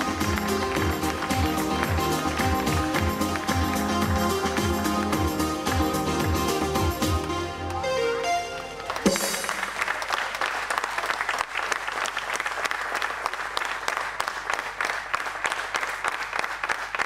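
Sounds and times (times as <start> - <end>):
audience applauding: 0.0 - 7.8, 8.5 - 17.0
stage music: 0.0 - 10.8.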